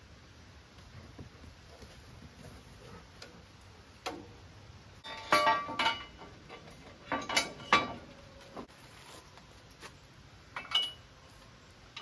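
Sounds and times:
metal parts clanking: 0:05.0 - 0:08.3, 0:10.6 - 0:11.1.

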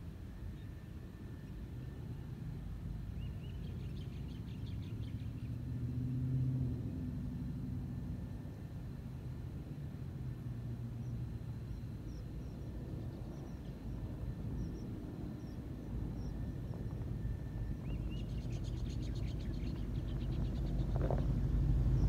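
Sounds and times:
truck engine low drone: 0:00.0 - 0:22.0
birds chirping: 0:11.0 - 0:22.0.

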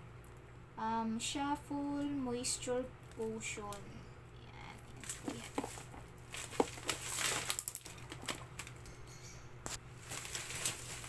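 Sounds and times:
plastic packaging crinkling: 0:04.8 - 0:08.9, 0:09.7 - 0:11.0
sharp clicks and crackles: 0:04.8 - 0:08.9.

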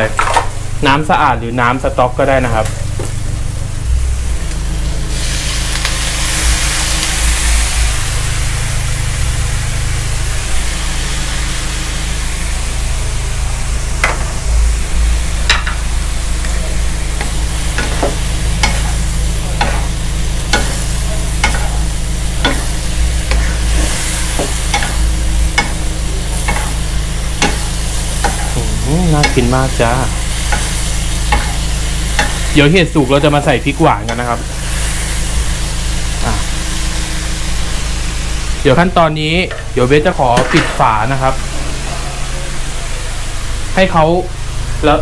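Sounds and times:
mushrooms sizzling in a wok: 0:00.0 - 0:45.0
low steady hum: 0:12.1 - 0:43.7.

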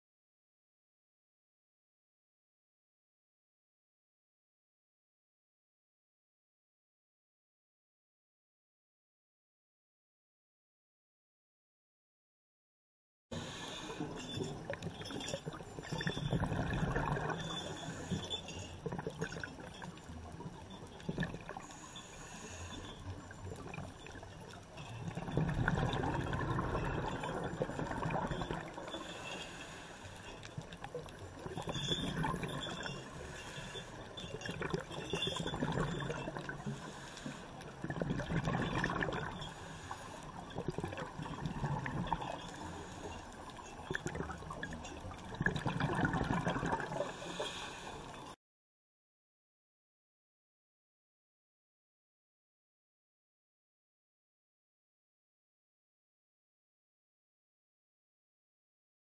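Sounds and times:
underwater exhaust bubbles gurgling: 0:13.4 - 0:48.4.

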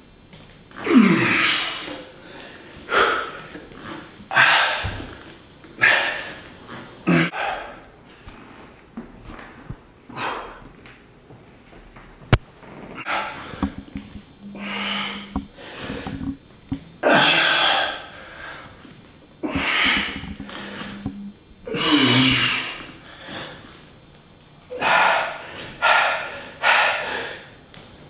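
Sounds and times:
man groaning: 0:00.8 - 0:02.0, 0:14.4 - 0:15.4, 0:17.0 - 0:18.1, 0:21.7 - 0:22.9
man exhaling forcefully and grunting: 0:00.8 - 0:02.1, 0:04.3 - 0:05.0, 0:05.8 - 0:06.4, 0:14.6 - 0:16.1, 0:17.0 - 0:18.6, 0:19.4 - 0:21.0, 0:21.7 - 0:23.6, 0:24.7 - 0:27.6.

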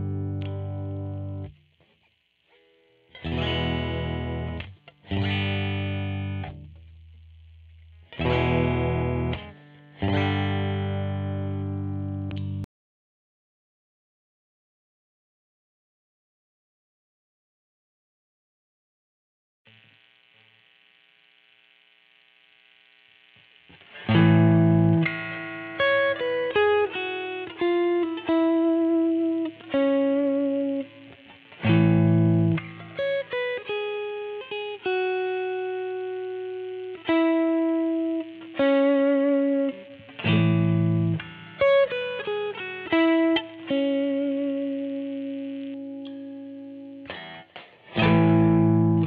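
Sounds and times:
picked guitar notes: 0:00.0 - 0:01.8, 0:02.6 - 0:12.6, 0:23.7 - 0:49.0
faint amp noise: 0:00.0 - 0:12.7, 0:19.7 - 0:49.0
overdriven electric guitar chords: 0:00.0 - 0:12.7, 0:19.7 - 0:49.0.

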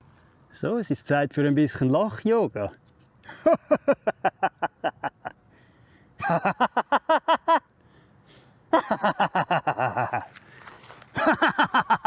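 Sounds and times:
man laughing rhythmically: 0:03.3 - 0:05.4, 0:06.2 - 0:07.7, 0:08.7 - 0:10.3, 0:11.1 - 0:12.0.

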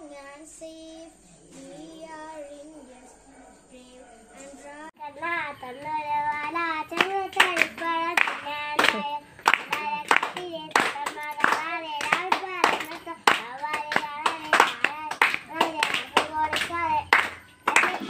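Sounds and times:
child singing: 0:00.0 - 0:03.1, 0:03.7 - 0:18.0
handclaps: 0:05.8 - 0:18.0.

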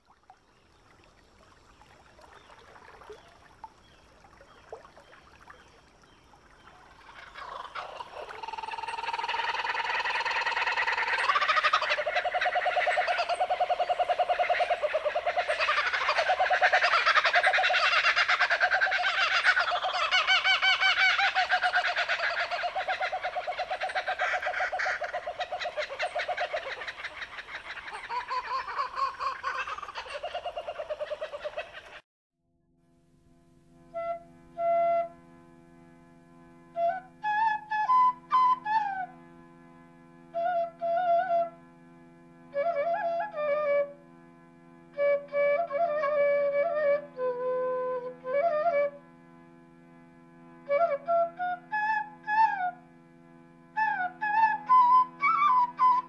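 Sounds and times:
chorus of pulsing animal trills: 0:06.6 - 0:32.0.

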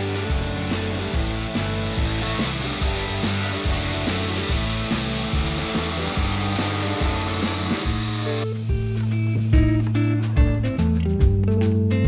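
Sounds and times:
jigsaw cutting through wood: 0:00.0 - 0:08.4
background music: 0:00.0 - 0:12.0.

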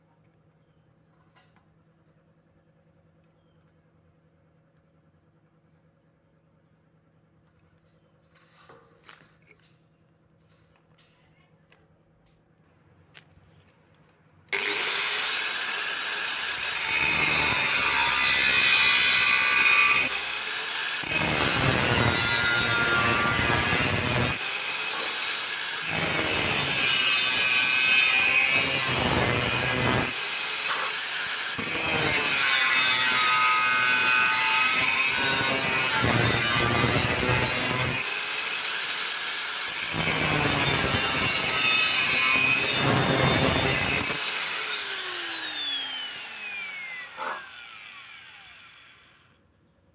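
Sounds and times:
angle grinder cutting steel tube: 0:14.5 - 0:49.2.

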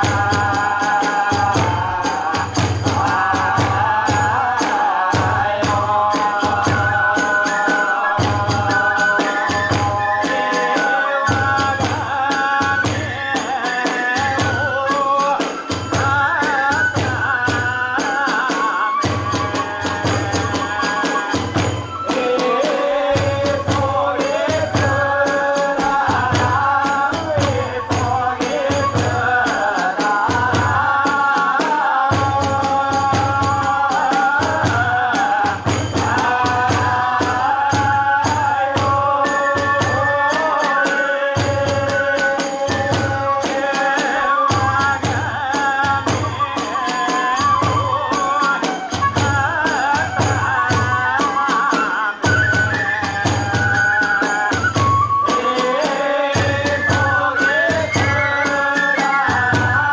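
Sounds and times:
flute melody: 0:06.9 - 0:12.0, 0:18.4 - 0:25.1, 0:44.1 - 0:59.9.

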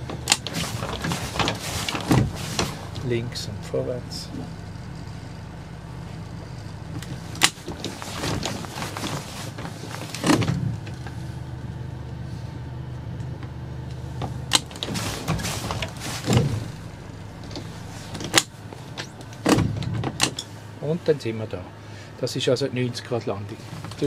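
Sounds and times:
motorboat engine low hum: 0:00.0 - 0:24.0.

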